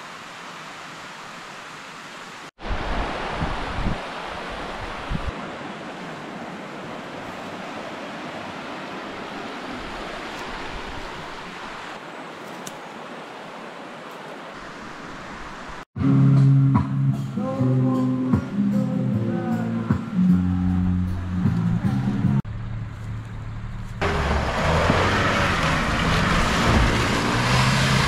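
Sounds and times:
river rushing over stones: 0.0s - 15.9s
low bumps: 20.7s - 28.0s.

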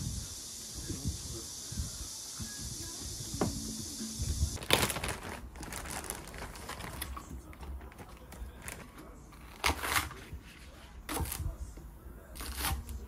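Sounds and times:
plastic bag crinkling: 4.6s - 9.6s.

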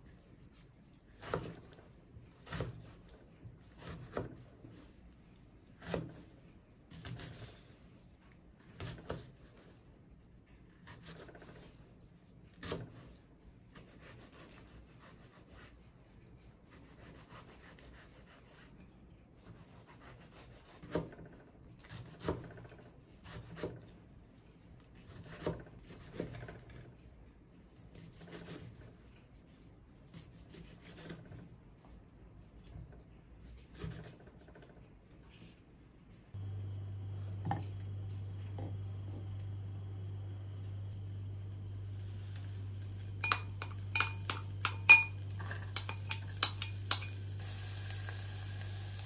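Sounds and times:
knife cutting and scraping: 30.1s - 31.4s.

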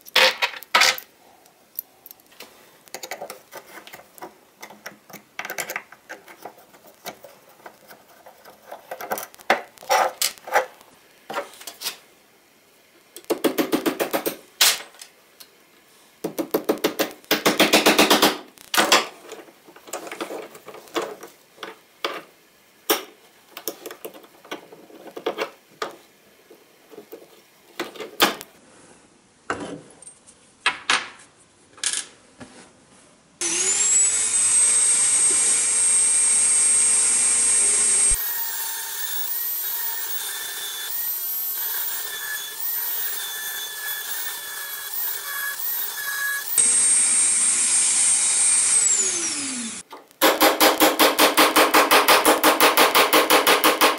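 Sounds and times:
rotary tool whine: 33.4s - 49.8s.

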